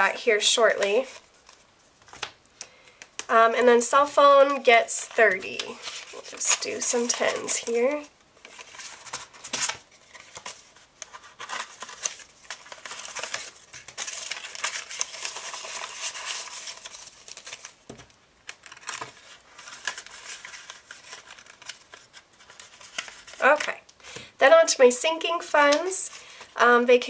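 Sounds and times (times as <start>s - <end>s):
paper banknotes rustling: 4.4s - 23.7s.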